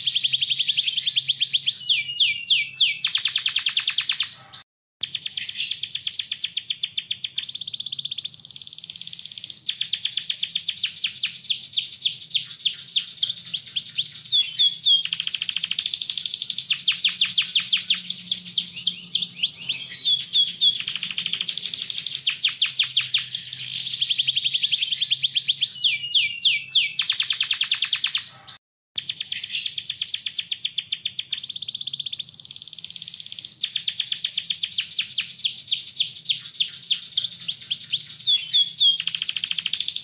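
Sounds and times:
canary singing trills: 0.0s - 40.0s.

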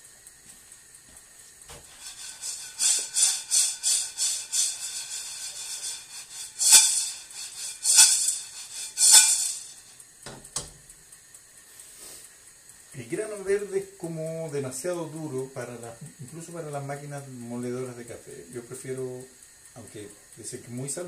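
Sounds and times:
coffee beans rattling in a pan: 1.8s - 10.3s.

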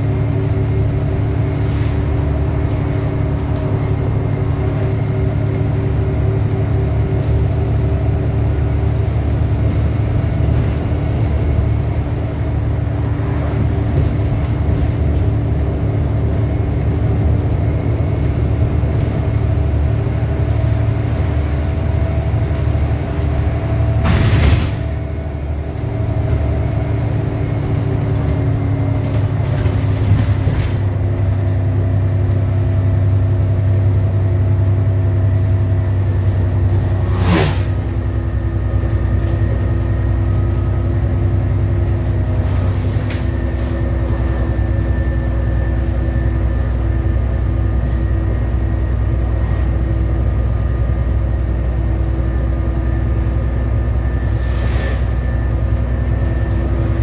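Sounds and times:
bus engine droning: 0.0s - 57.0s
road noise: 0.0s - 57.0s
brief burst of noise: 37.0s - 37.8s.

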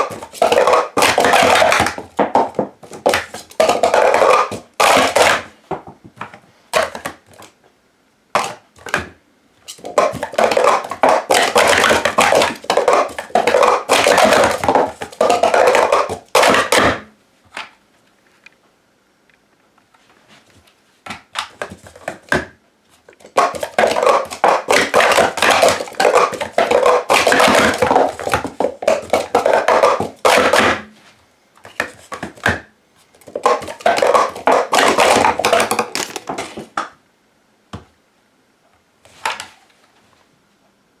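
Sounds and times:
plastic cups clattering: 0.0s - 7.5s, 9.7s - 17.7s, 21.1s - 22.5s, 23.1s - 30.9s, 31.6s - 36.9s.

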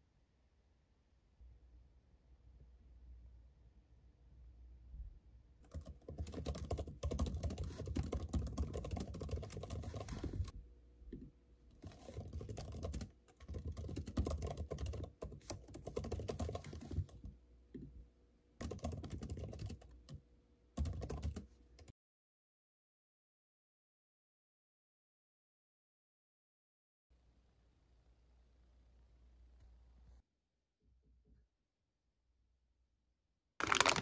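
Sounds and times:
fast laptop keyboard typing: 5.6s - 10.6s, 11.8s - 17.3s, 18.6s - 20.2s, 20.8s - 21.9s, 33.6s - 34.0s.

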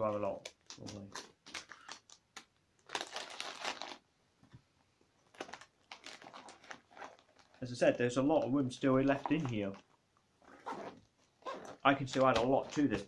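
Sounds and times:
packaging crinkling and rustling: 0.0s - 4.0s, 5.2s - 7.8s, 8.4s - 9.9s.

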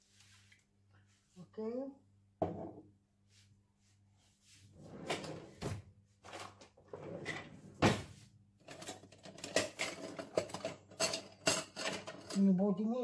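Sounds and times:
drawer pulled open: 4.9s - 8.1s
drawer contents rattling: 6.2s - 12.4s.

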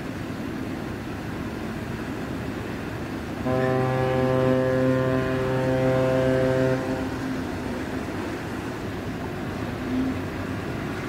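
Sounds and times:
low steady rumble: 0.0s - 11.0s
ship's horn deep blast: 3.4s - 8.5s.

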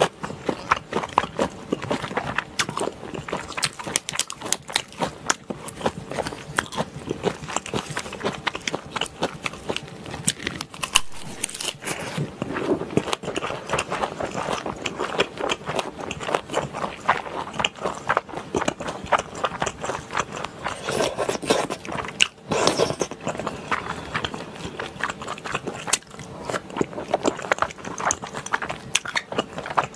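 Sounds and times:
wet chewing and lip smacking: 0.0s - 29.9s
slurping noodles: 20.7s - 25.8s.

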